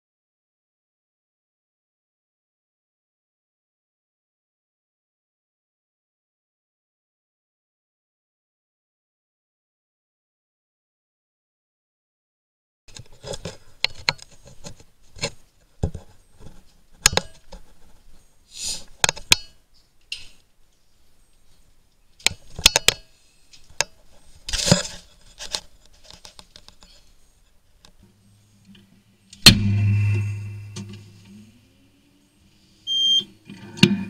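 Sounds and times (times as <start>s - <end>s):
low hum: 28.0s - 32.8s
loud sudden thump: 29.4s - 31.2s.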